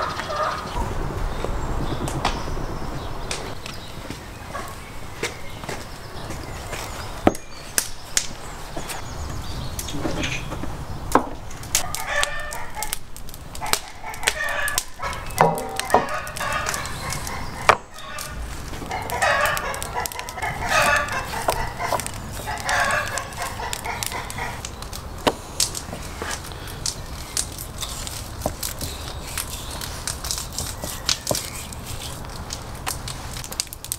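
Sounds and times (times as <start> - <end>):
chickens clucking: 0.0 - 0.8, 13.6 - 24.8
rooster crowing: 18.9 - 22.0.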